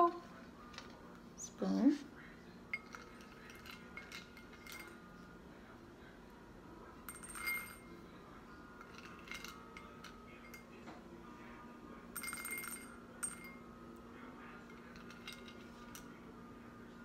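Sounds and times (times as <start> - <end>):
beans rattling: 2.8 - 5.0.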